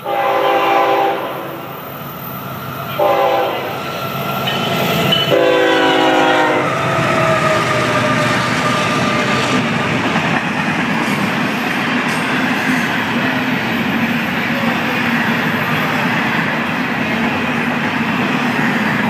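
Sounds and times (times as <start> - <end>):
locomotive horn blasts: 0.0 - 1.6, 3.0 - 3.7, 5.3 - 6.8
train rumble and wheel clatter: 0.0 - 19.0.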